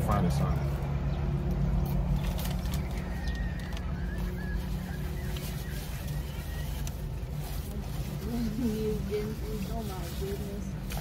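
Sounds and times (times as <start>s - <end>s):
low rumble inside car: 0.0s - 11.0s.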